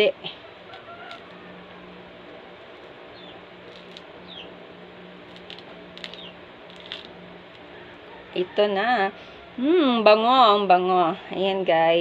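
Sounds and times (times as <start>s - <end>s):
low hum: 0.0s - 11.4s
orange rind tearing: 0.7s - 1.5s, 3.6s - 4.5s, 5.2s - 7.7s.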